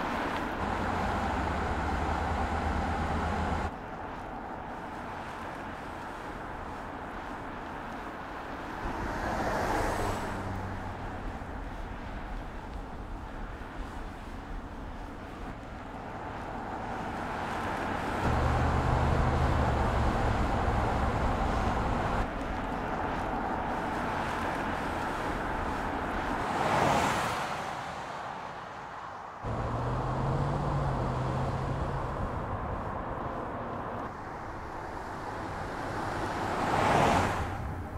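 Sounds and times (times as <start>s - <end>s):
engine low hum: 18.2s - 22.4s.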